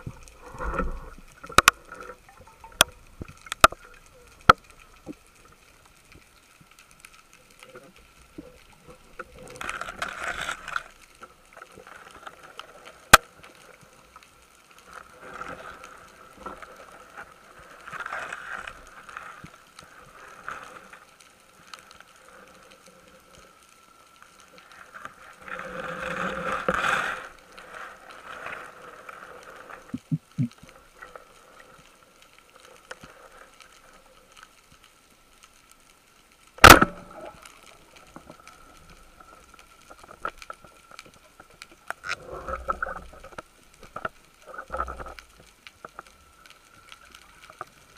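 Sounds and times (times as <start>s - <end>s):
underwater rustling and scraping: 0.0s - 47.9s
speargun firing crack: 36.6s - 37.1s.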